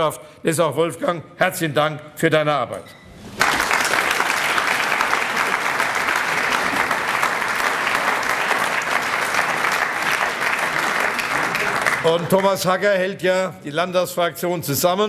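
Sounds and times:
audience applauding: 3.2s - 12.8s.

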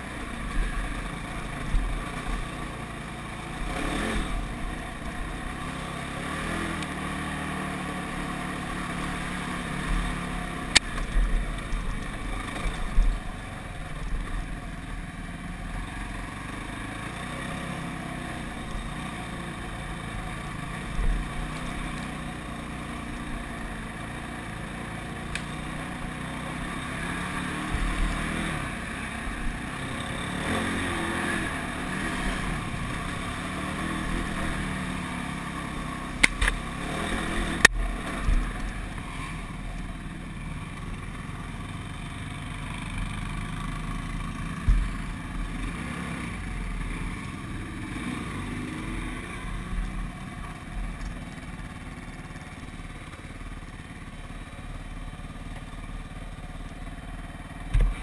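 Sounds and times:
quad bike engine running: 0.0s - 58.0s
quad bike jolting over bumps: 16.3s - 58.0s.

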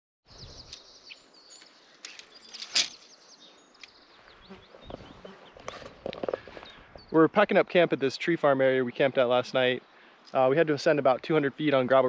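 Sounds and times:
small birds chirping: 0.3s - 12.0s
sharp rustle: 1.6s - 3.1s.

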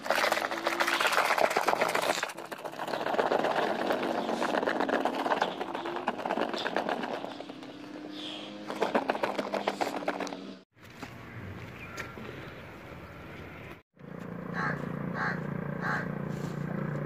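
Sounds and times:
hand churning soapy water: 0.0s - 7.8s, 8.6s - 10.3s.

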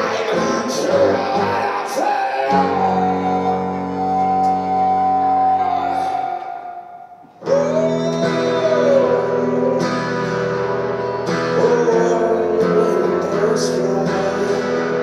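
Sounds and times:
acoustic guitar strumming: 0.0s - 15.0s
man singing: 0.0s - 15.0s.

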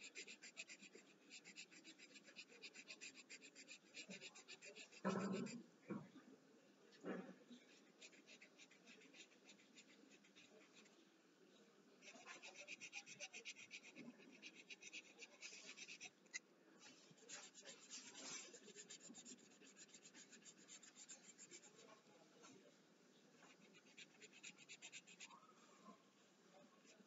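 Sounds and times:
pencil scratching on paper: 0.0s - 5.6s, 7.7s - 10.9s, 12.0s - 16.2s, 16.8s - 22.0s, 23.4s - 25.4s.

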